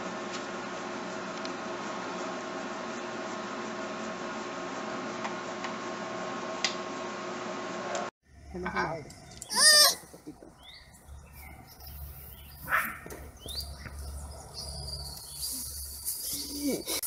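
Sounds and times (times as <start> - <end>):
birds chirping: 8.6 - 17.0.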